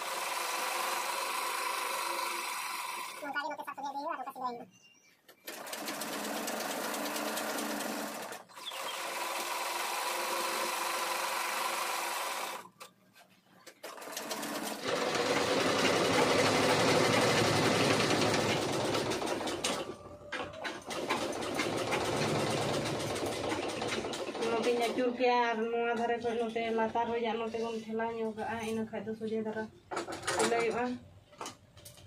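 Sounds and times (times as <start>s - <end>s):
sewing machine stitching: 0.0s - 3.2s, 5.4s - 12.7s, 13.7s - 25.0s.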